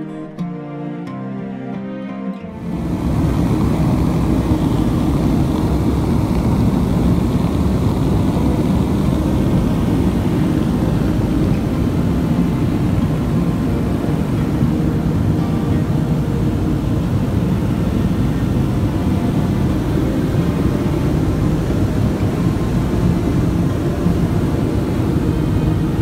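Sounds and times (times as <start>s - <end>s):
propeller aircraft droning in flight: 2.5s - 26.0s.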